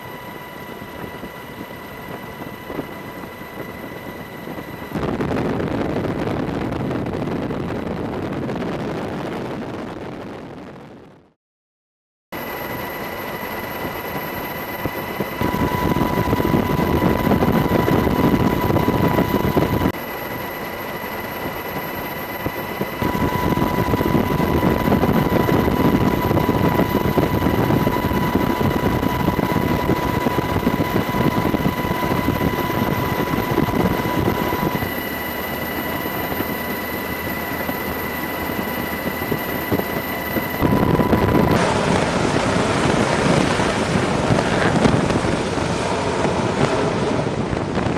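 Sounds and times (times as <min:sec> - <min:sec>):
jet engine roaring at high power: 0:00.0 - 0:11.0, 0:12.4 - 0:47.9
thin high whine: 0:00.0 - 0:11.0, 0:12.4 - 0:47.9
rumbling engine and rushing air: 0:00.8 - 0:10.9, 0:22.4 - 0:47.9.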